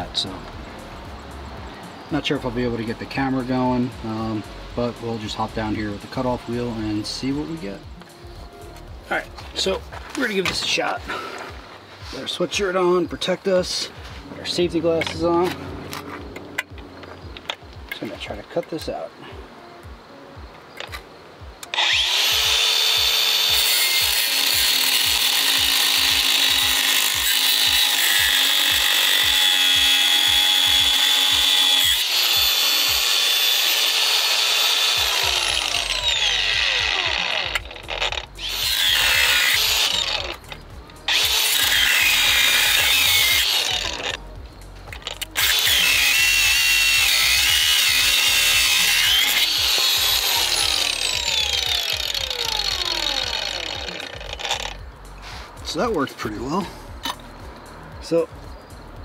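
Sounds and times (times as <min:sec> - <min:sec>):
cutoff wheel cutting steel: 0:21.6 - 0:44.2, 0:45.0 - 0:54.8.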